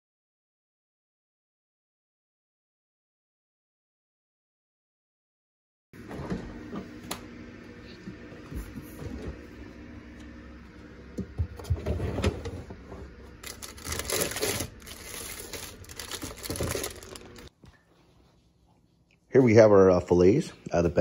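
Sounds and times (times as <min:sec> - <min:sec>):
refrigerator door opening: 0:06.0 - 0:07.3, 0:11.2 - 0:17.5
drawer sliding out: 0:11.6 - 0:13.2
plastic bag crinkling: 0:13.3 - 0:17.5.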